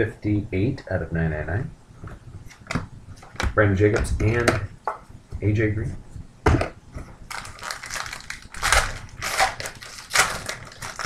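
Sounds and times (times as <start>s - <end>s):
foil wrappers crinkling and tearing: 7.3s - 11.0s.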